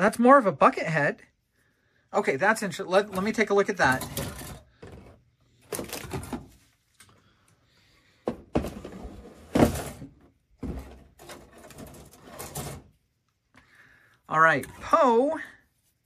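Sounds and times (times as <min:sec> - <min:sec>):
cardboard boxes rustling and knocking: 0:08.2 - 0:12.1.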